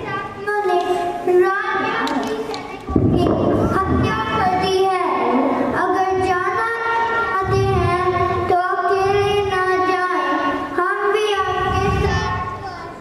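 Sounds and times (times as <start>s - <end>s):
child singing into microphone: 0.0s - 13.0s.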